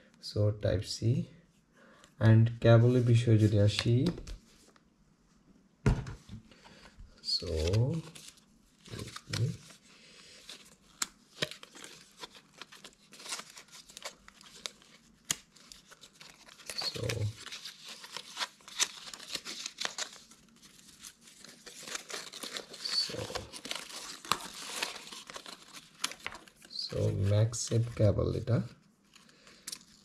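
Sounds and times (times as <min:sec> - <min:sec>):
packaging tearing and crinkling: 0:10.6 - 0:27.1.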